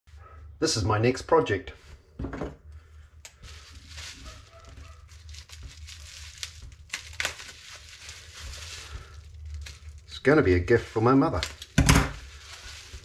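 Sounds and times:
steady low hum: 0:00.1 - 0:13.0
rustling and crinkling handling: 0:02.6 - 0:13.0.

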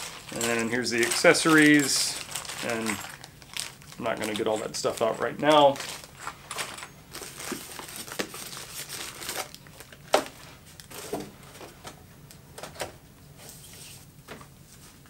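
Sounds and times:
plastic bags crinkling: 0:00.0 - 0:11.2.

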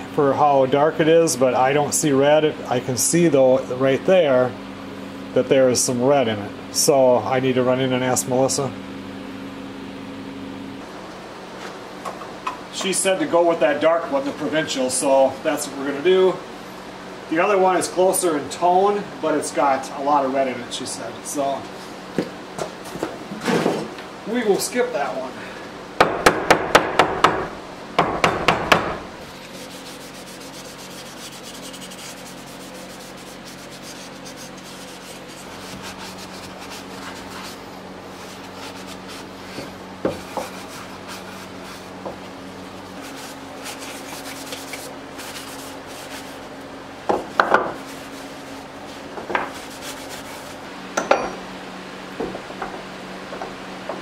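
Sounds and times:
sharp knocks: 0:26.0 - 0:29.1
rag wiping wood: 0:29.2 - 0:46.5, 0:47.7 - 0:50.6.

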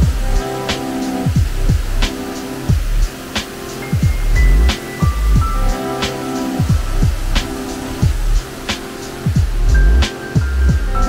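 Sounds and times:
background music with deep drums: 0:00.0 - 0:11.0.

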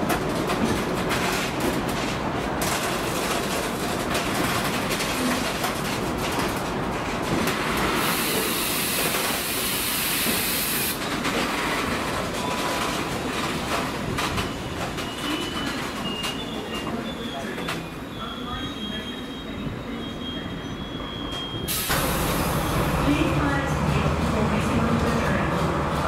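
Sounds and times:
freight train rolling past: 0:00.0 - 0:26.0
faint high wheel squeals: 0:14.4 - 0:21.7.

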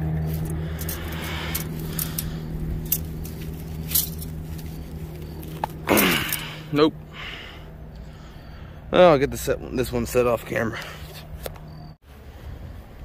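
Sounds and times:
metallic clicks and scrapes: 0:00.0 - 0:06.5
steady low hum: 0:00.0 - 0:13.0.

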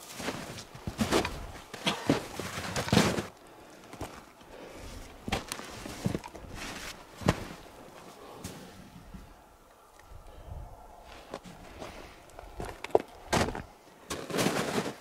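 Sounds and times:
footsteps crunching in snow: 0:00.0 - 0:03.3, 0:04.9 - 0:08.7, 0:11.1 - 0:15.0.

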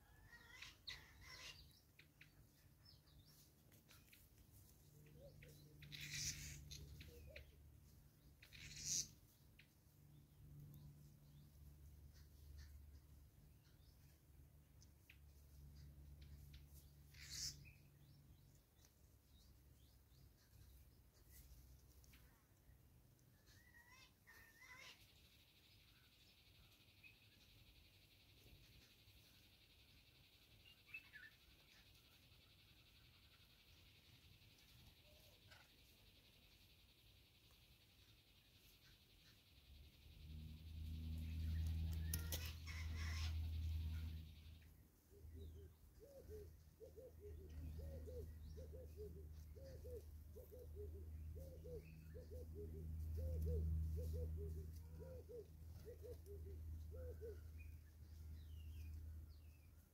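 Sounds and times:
faint bird chirps: 0:00.0 - 0:59.9
soft ticks: 0:41.2 - 0:42.6.

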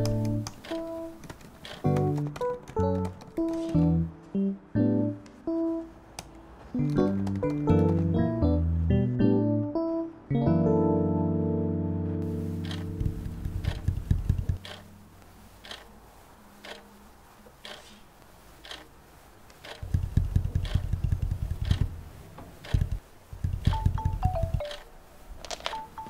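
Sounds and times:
steady ticking: 0:12.5 - 0:14.9, 0:15.6 - 0:15.9, 0:16.6 - 0:16.9, 0:17.6 - 0:17.9, 0:18.6 - 0:18.9, 0:19.5 - 0:24.9.

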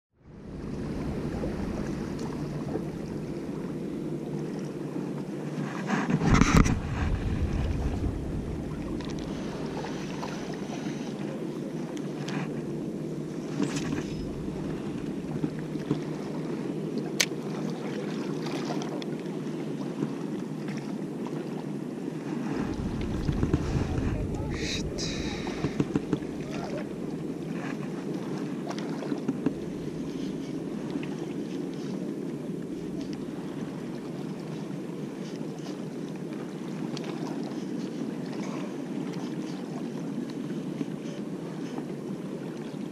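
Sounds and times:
wind rumbling on microphone: 0:00.2 - 0:16.9, 0:21.9 - 0:35.7
sea waves: 0:00.2 - 0:42.9.

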